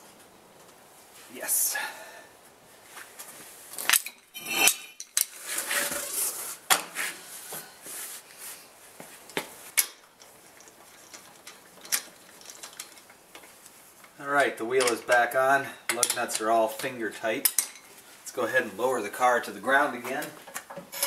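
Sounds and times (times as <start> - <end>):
metal clinks and clanks: 3.9 - 5.2.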